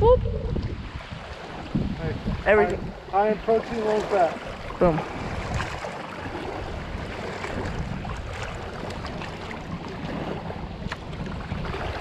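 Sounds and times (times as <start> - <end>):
wind buffeting microphone: 0.0 - 12.0
small waves lapping at shore: 0.5 - 12.0.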